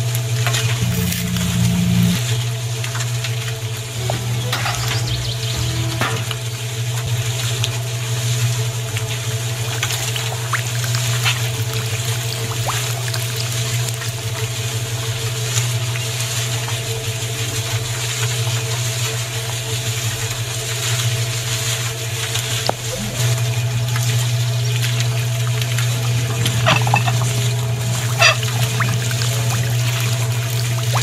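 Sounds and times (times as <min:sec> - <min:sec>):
electric motor humming: 0:00.8 - 0:02.3
water pouring: 0:00.8 - 0:02.3, 0:09.4 - 0:15.1, 0:25.6 - 0:31.0
concrete mixer drum tumbling: 0:26.2 - 0:31.0.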